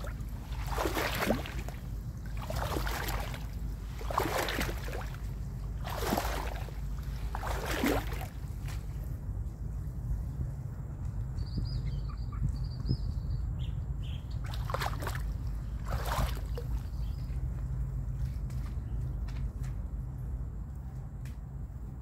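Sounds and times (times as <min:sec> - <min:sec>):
water splashing: 0:00.0 - 0:09.0, 0:14.4 - 0:16.9
wind rumble on microphone: 0:00.0 - 0:22.0.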